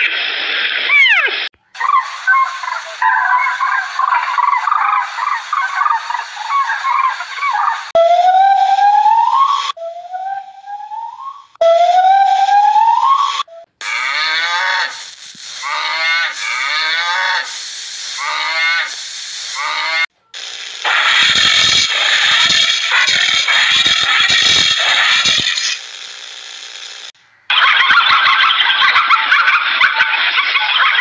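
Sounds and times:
whistle-like animal cries: 0.9 - 15.0, 18.2 - 20.1
cattle mooing: 13.9 - 15.0, 15.6 - 17.5.

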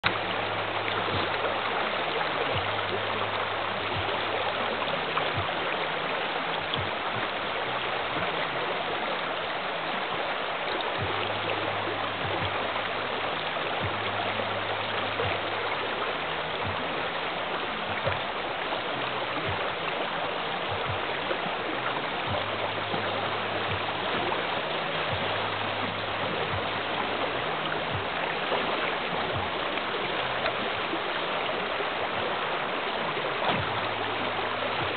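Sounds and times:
river water rushing over rocks: 0.0 - 34.9.

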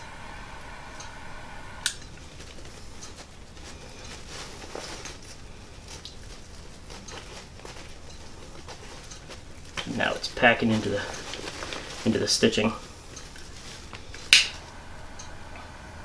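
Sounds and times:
steady hum: 0.0 - 16.0.

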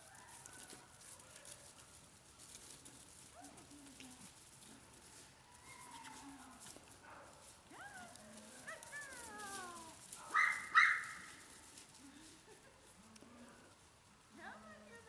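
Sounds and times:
dry leaves rustling underfoot: 0.0 - 15.0
dog yapping: 8.6 - 11.4.

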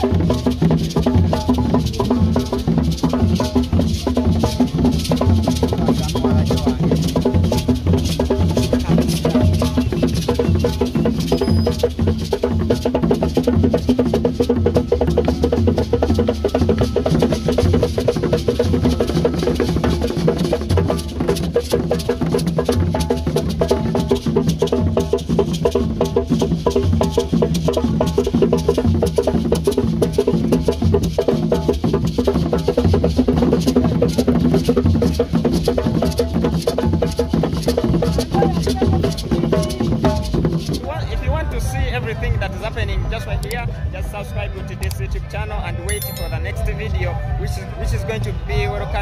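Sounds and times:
music with fast drumming: 0.0 - 40.8.

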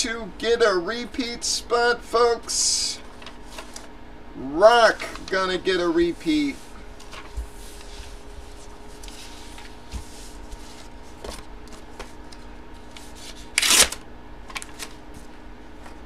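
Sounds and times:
paper cards rustling: 3.0 - 3.9, 4.9 - 16.0.

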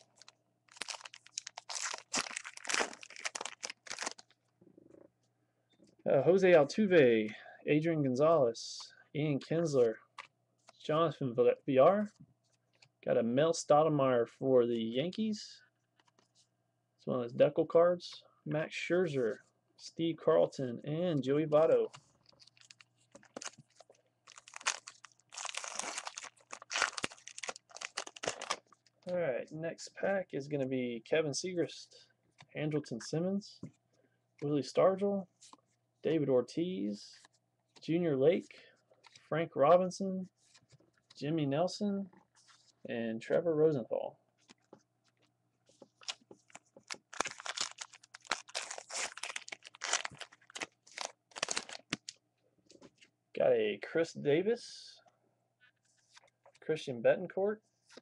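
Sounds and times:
wrapper being torn and crumpled: 0.0 - 4.3, 22.2 - 28.7, 46.0 - 52.2.

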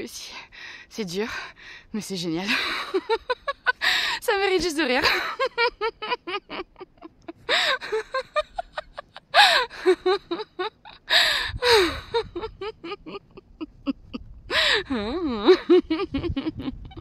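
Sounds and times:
woman laughing heartily: 2.5 - 4.2, 4.9 - 17.0
gasping in-breaths: 11.1 - 12.2, 14.5 - 15.0.

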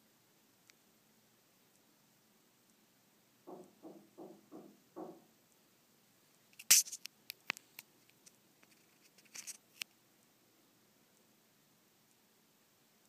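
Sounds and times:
crisp crunches and clicks: 6.5 - 9.9.

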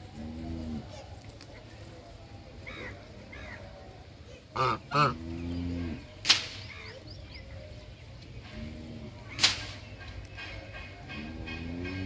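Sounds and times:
geese honking: 4.6 - 5.3, 8.4 - 12.0
sharp loud clicks: 6.2 - 6.7, 9.4 - 9.9.

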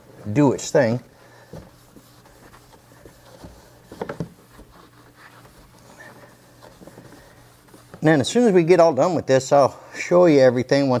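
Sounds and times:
rag rubbing on kayak deck: 0.4 - 8.6.

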